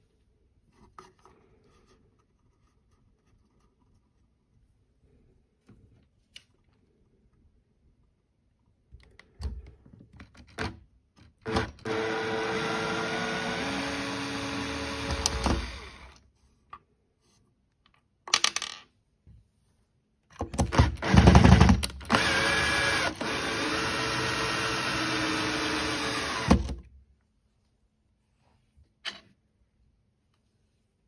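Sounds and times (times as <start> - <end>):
cordless drill whining: 11.4 - 16.2, 20.8 - 26.8
drill clicks: 11.4 - 16.2, 20.6 - 26.8
drill grinding and chattering: 11.5 - 16.2, 21.0 - 26.7.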